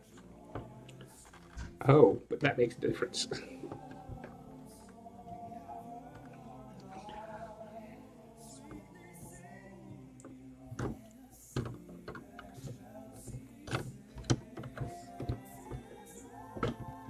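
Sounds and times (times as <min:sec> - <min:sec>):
quiet holiday music: 0:00.0 - 0:17.0.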